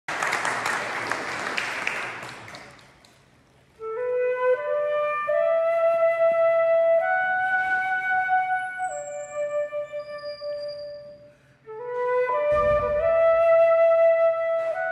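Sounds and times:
audience applause: 0.1s - 3.0s
instrumental ensemble slow melody: 3.7s - 14.9s.

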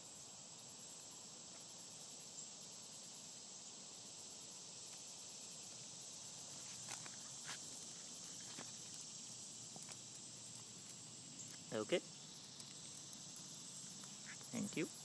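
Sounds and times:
high insect drone: 0.0s - 15.0s
toy car clicking on concrete: 12.4s - 14.5s.

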